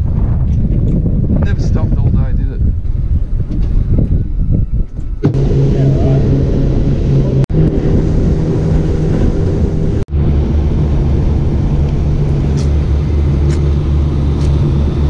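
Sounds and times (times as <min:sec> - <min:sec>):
wind and water noise: 0:00.0 - 0:15.0
outboard motor humming: 0:05.2 - 0:15.0.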